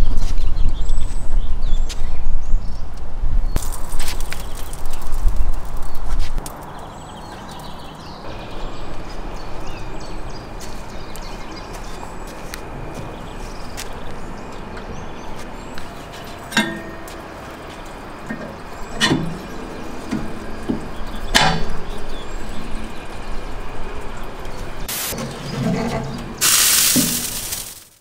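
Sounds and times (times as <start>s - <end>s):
steady background noise: 0.0s - 28.0s
metallic clanks with ringing: 16.2s - 23.6s.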